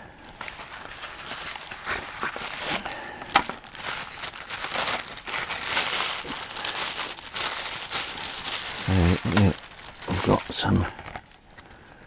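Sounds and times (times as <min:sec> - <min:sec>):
plastic packaging crinkling: 0:00.0 - 0:11.6
cardboard rustling: 0:00.3 - 0:11.4.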